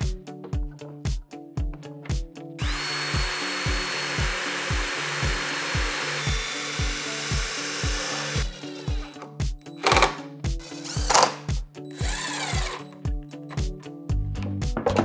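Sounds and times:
background music with steady beat: 0.0s - 15.0s
cordless drill boring into wood: 2.6s - 9.2s, 9.8s - 12.9s.

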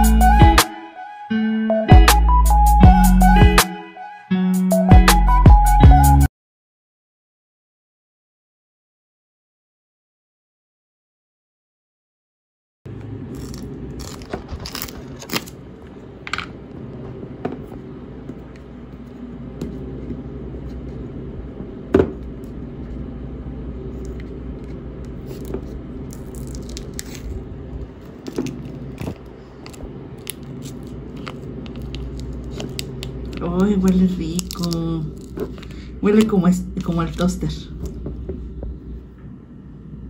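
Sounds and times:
steady low hum: 12.9s - 40.0s
foil seal peeling: 13.3s - 15.6s, 25.2s - 37.3s.

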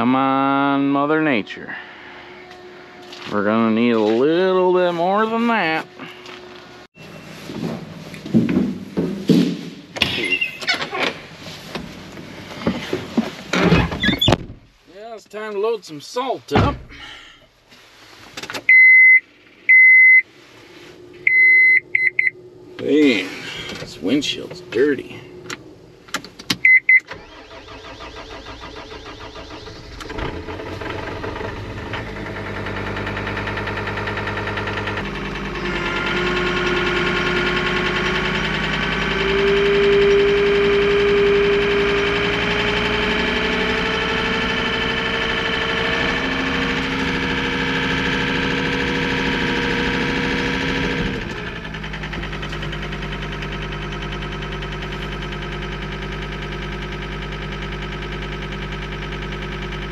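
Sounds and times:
vehicle engine running: 0.0s - 9.0s, 27.2s - 59.9s.

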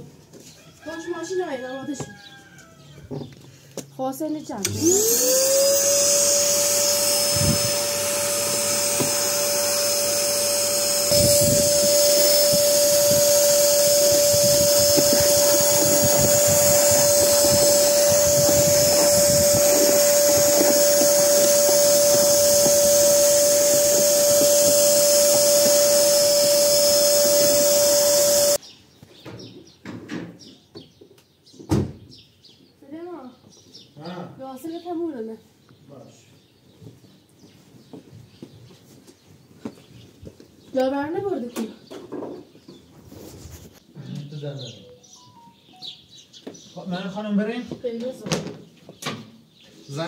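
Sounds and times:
vacuum cleaner whining: 4.6s - 28.6s.

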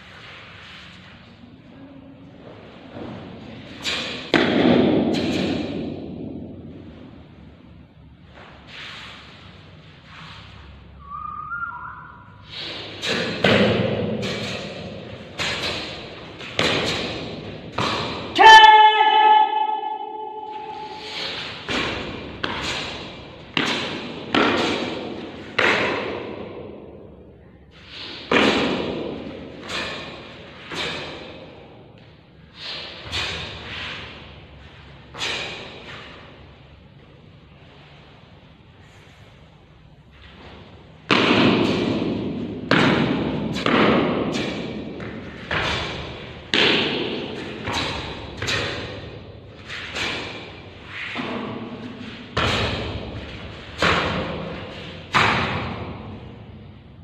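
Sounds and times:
karate snapping and thudding: 3.7s - 6.5s, 12.8s - 18.5s, 21.2s - 26.8s, 28.2s - 31.6s, 35.1s - 36.2s, 41.0s - 56.2s.

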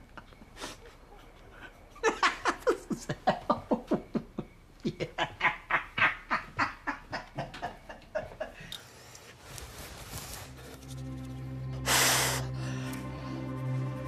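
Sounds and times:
old man cackling with laughter: 0.0s - 8.8s.

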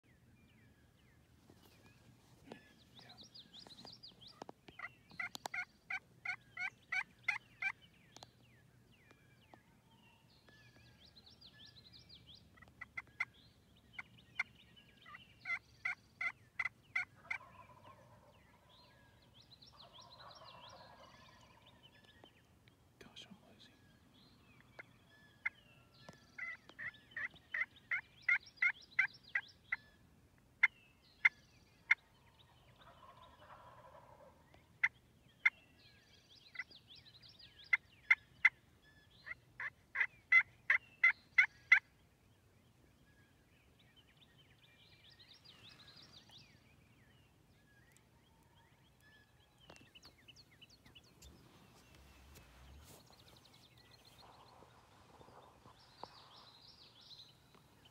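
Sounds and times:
turkey yelping: 15.4s - 18.3s, 32.8s - 34.3s, 39.2s - 40.8s.

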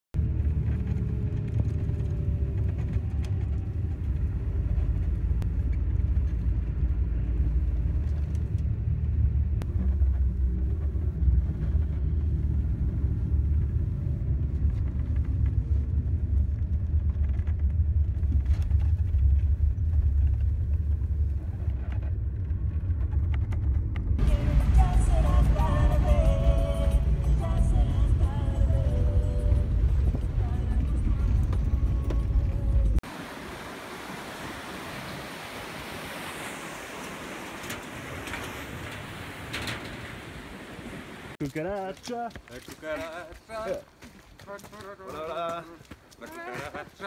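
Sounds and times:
car driving on gravel road: 0.2s - 33.2s
music: 24.2s - 33.0s.

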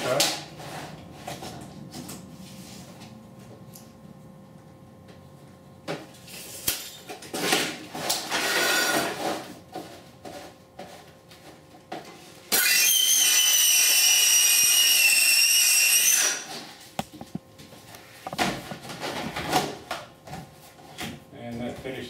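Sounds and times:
circular saw cutting: 12.5s - 16.5s.

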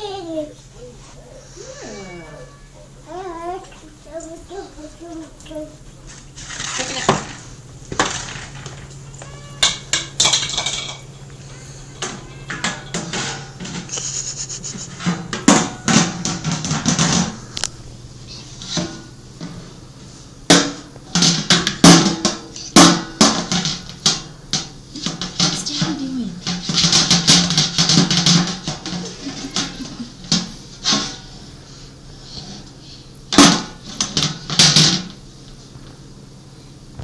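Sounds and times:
plastic colander banging chair: 15.0s - 17.4s, 20.5s - 31.3s, 33.3s - 35.2s.

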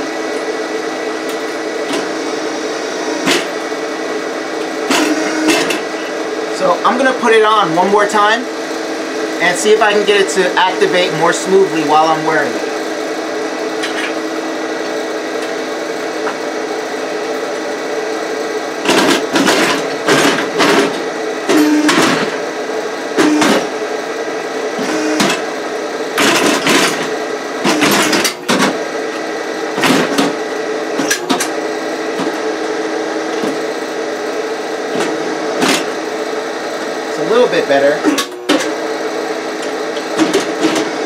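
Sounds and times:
hydraulic power unit humming: 0.0s - 41.0s
hydraulic arms moving in bursts: 1.7s - 7.6s.

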